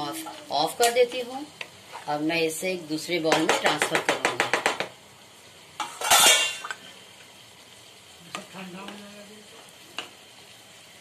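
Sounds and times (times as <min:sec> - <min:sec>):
spatula scraping a pan: 0:05.8 - 0:06.8.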